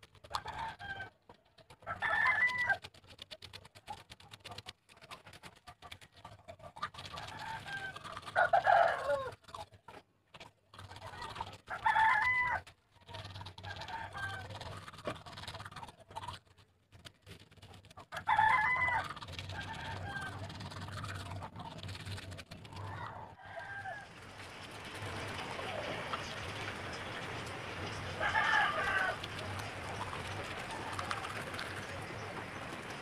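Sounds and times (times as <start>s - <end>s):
rooster crowing: 1.9s - 2.8s, 7.4s - 9.3s, 18.2s - 20.4s, 22.9s - 24.2s, 28.1s - 29.4s.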